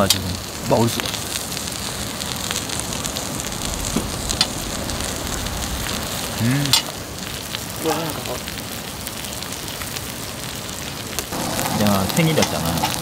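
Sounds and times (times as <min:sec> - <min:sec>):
pork belly sizzling on a griddle: 0:00.0 - 0:13.0.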